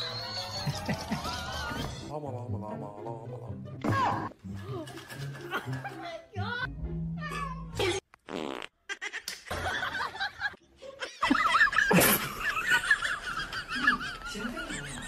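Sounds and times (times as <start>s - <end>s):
snickering laughter: 8.9s - 15.0s.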